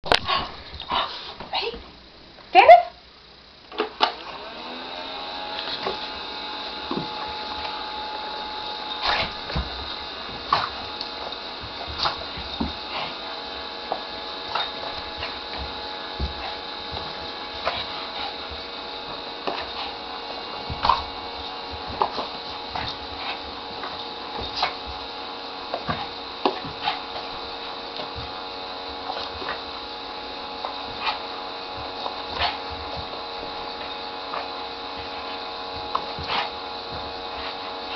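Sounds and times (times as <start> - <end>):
small motor whirring hum: 3.8 - 37.9.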